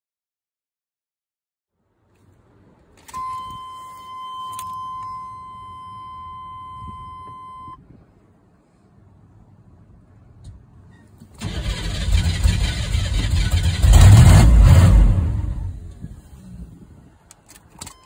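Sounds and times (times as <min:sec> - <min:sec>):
starter cranking engine: 0:11.4 - 0:14.5
diesel engine running: 0:11.4 - 0:16.8.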